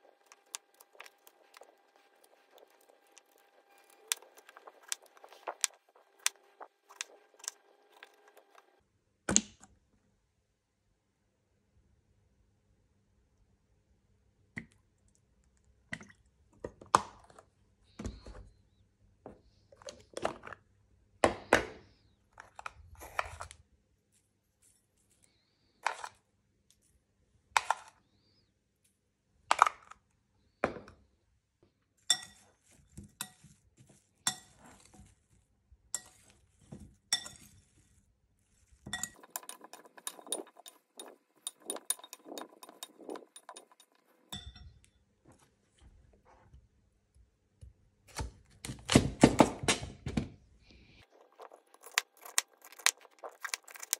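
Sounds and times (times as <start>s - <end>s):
fork tossing food in glass bowl: 0.0s - 8.8s, 32.0s - 44.6s, 51.0s - 53.9s
kitchen things clinking and knocking: 38.9s - 44.9s.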